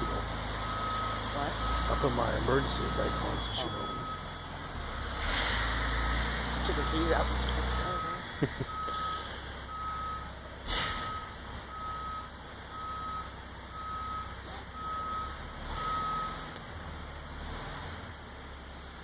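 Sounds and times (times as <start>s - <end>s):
backup alarm beeping: 0.0s - 5.2s, 6.7s - 16.4s
low diesel engine rumble: 0.0s - 19.0s.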